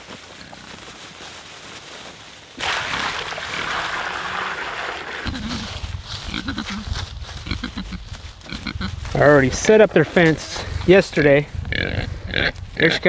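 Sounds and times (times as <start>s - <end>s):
bucket pouring onto ground: 2.6s - 5.9s.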